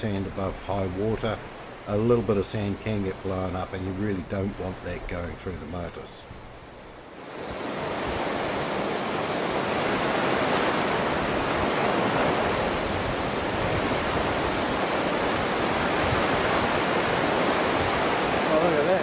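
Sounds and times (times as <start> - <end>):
surf breaking on sandy beach: 7.1 - 19.0.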